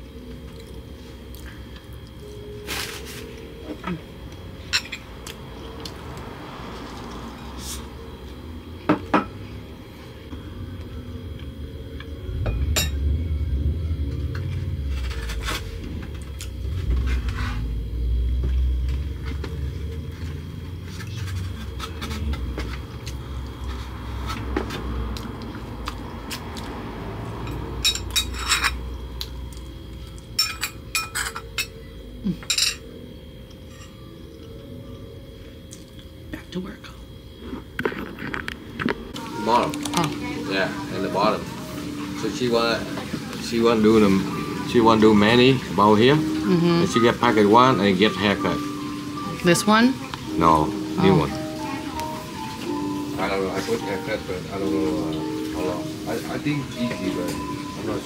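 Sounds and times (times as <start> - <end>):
faint steady hum: 0.0 - 24.1
low rumble: 10.4 - 24.2.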